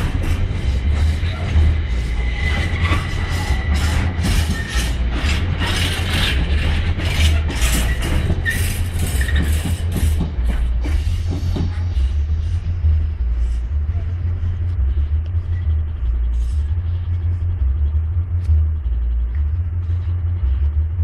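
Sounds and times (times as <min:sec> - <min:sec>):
train wheels clattering over rail joints: 0:00.0 - 0:12.2
low rumble of rolling wagons: 0:00.0 - 0:21.0.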